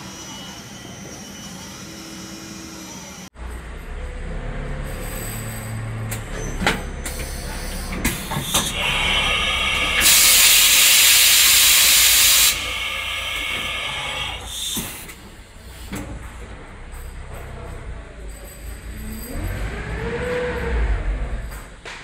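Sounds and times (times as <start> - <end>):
loud air hiss: 8.1 - 15.8.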